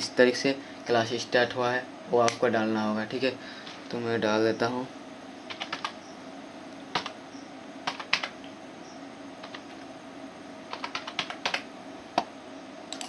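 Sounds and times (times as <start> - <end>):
computer keyboard typing: 5.5 - 6.0, 6.9 - 7.2, 7.8 - 8.4, 9.4 - 9.9, 10.7 - 11.7.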